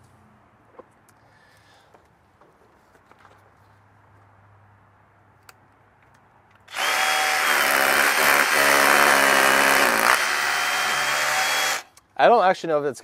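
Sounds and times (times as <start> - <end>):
cordless drill whining: 6.7 - 11.9.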